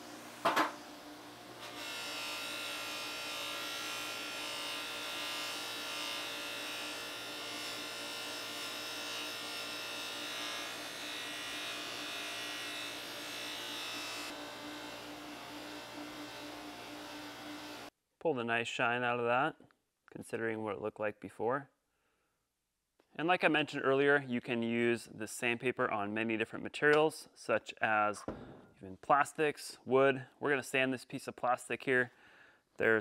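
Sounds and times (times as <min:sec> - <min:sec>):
electric drill motor whine: 0:12.9 - 0:17.9.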